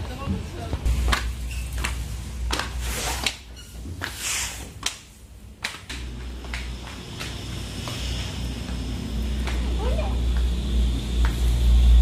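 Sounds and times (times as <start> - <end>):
footsteps on staircase: 0.0 - 11.7.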